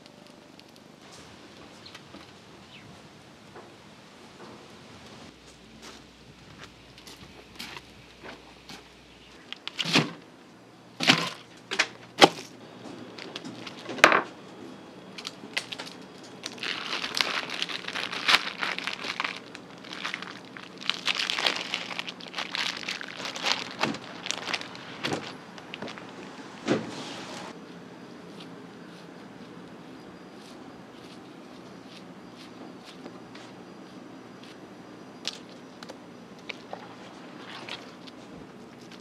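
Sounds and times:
plastic packaging crinkling: 0:12.3 - 0:14.2, 0:15.1 - 0:26.6.

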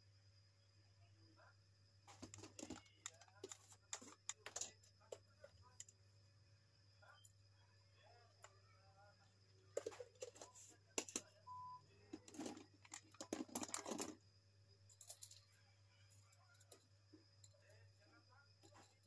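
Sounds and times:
glass jars and lids clinking: 0:12.2 - 0:14.2.

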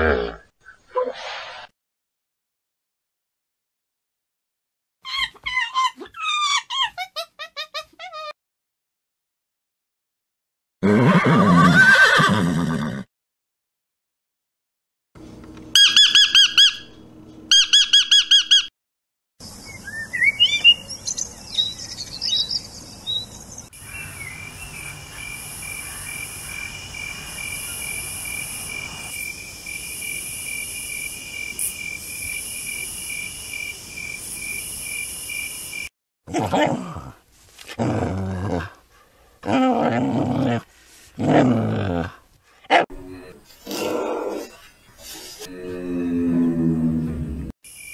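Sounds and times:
horse whinnies: 0:10.8 - 0:13.1
bird chirps: 0:15.8 - 0:16.9, 0:17.5 - 0:18.7, 0:19.4 - 0:28.0.

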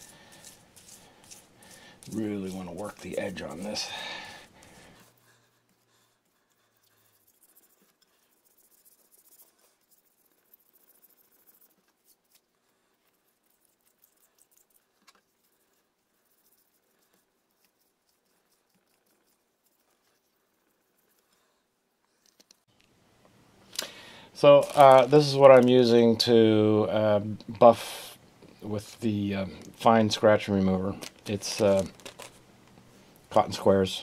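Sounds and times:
abrasive scratching on ceramic: 0:00.0 - 0:21.5.

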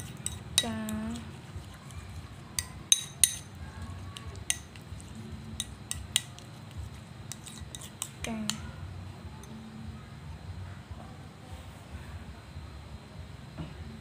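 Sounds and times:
metal spoon scraping ceramic bowl: 0:00.0 - 0:08.6.

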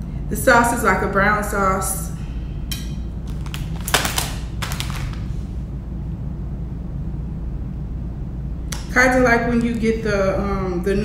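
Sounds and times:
steady low hum: 0:00.0 - 0:11.0
plastic packet crinkling: 0:03.2 - 0:05.3.

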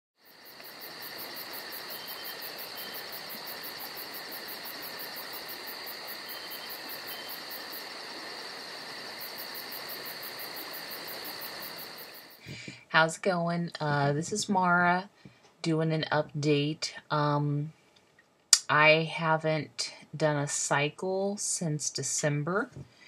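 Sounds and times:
crickets chirping: 0:00.2 - 0:12.5.

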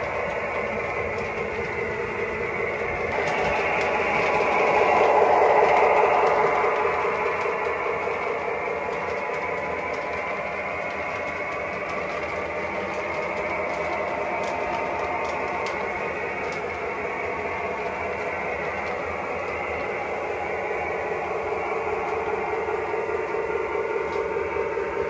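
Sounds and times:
toy train wheels on rails: 0:00.0 - 0:25.0.

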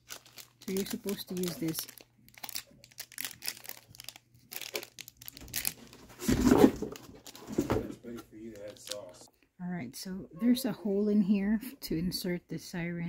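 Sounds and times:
plastic packaging crinkling: 0:00.0 - 0:07.6, 0:08.3 - 0:09.2
rustling bump: 0:06.0 - 0:08.3.

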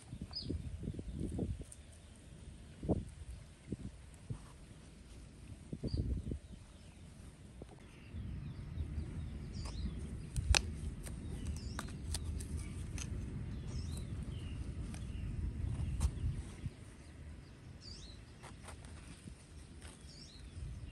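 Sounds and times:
small birds chirping: 0:00.0 - 0:20.9
low rumbling noise: 0:05.4 - 0:18.2
sharp clicks: 0:09.6 - 0:14.1.

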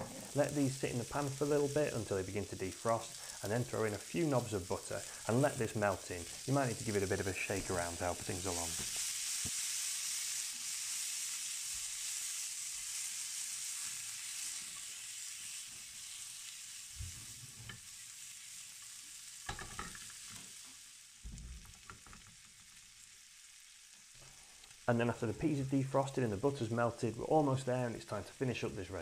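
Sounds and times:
food sizzling in a frying pan: 0:00.0 - 0:29.0.

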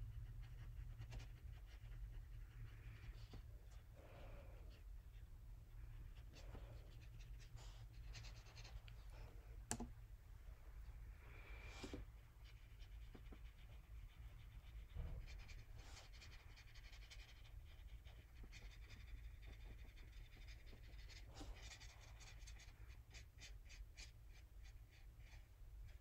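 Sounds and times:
paintbrush strokes on paper: 0:11.3 - 0:26.0.

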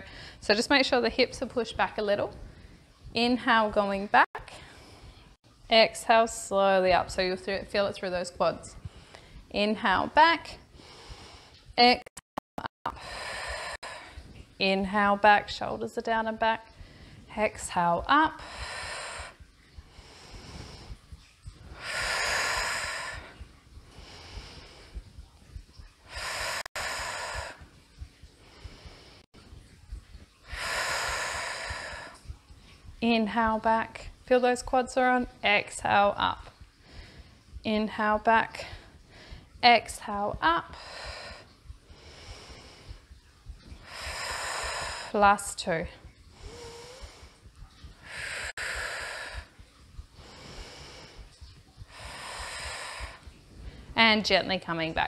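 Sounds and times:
woman breathing heavily: 0:00.0 - 0:00.4, 0:10.7 - 0:11.6, 0:12.9 - 0:14.4, 0:18.4 - 0:29.4, 0:30.2 - 0:32.8, 0:36.5 - 0:37.6, 0:38.6 - 0:39.6, 0:40.7 - 0:45.2, 0:45.9 - 0:54.0
soft low thumps: 0:00.0 - 0:55.0.

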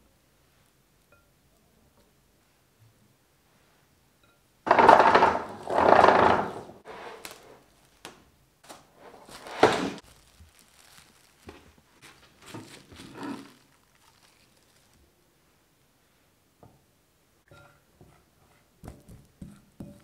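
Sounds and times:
plastic film crinkling: 0:07.2 - 0:15.2.

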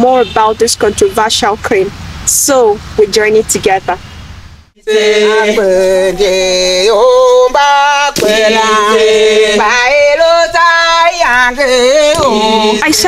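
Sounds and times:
person singing long notes: 0:04.8 - 0:13.0.

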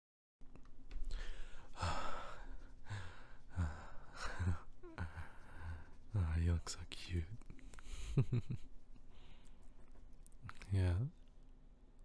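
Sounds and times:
man breathing and sighing: 0:01.0 - 0:06.1.

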